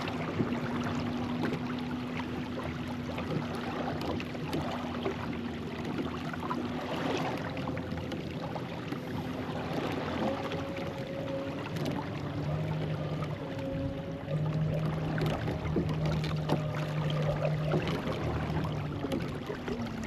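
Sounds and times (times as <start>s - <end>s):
water sloshing around kayak: 0.0s - 20.0s.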